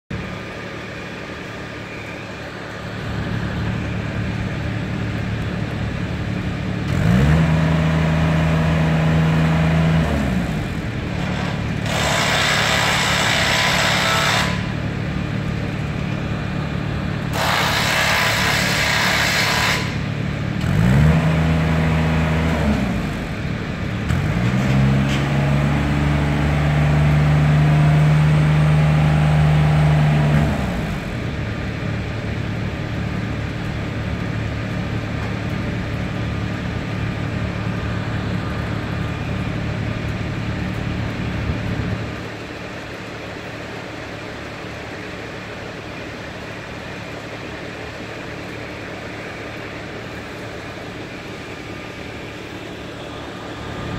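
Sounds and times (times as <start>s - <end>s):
lift engine running and revving: 0.1s - 53.9s
hissing bursts: 17.3s - 20.1s.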